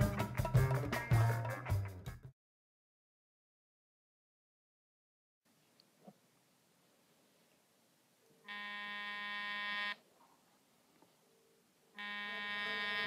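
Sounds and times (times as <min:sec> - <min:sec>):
buzzy phone ringtone: 0:08.5 - 0:10.0, 0:12.0 - 0:13.0.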